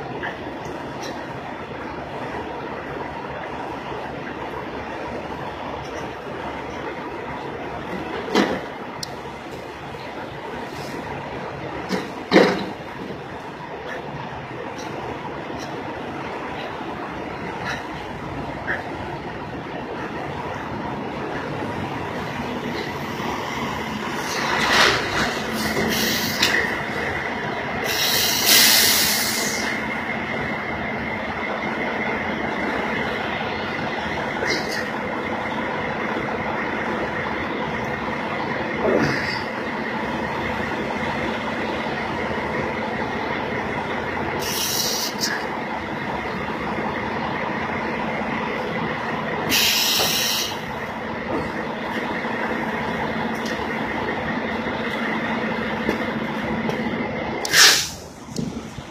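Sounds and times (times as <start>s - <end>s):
diesel truck engine idling: 0.0s - 58.9s
short hisses: 57.5s - 58.1s.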